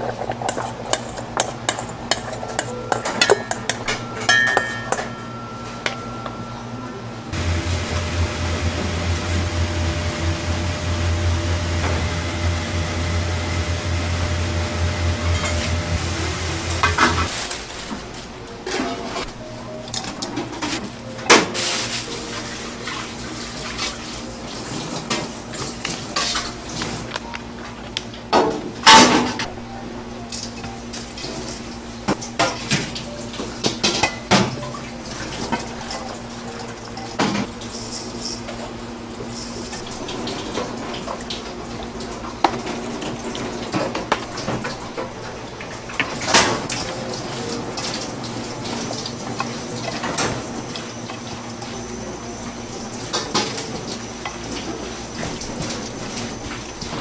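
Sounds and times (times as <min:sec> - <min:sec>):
dishes and utensils clinking: 0:00.0 - 0:06.7
steady hum: 0:00.1 - 0:18.6.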